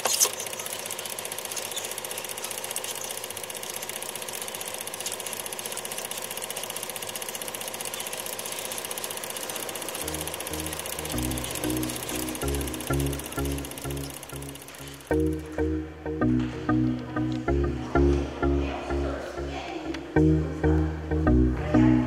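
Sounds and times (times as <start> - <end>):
film projector clattering: 0.0 - 15.3.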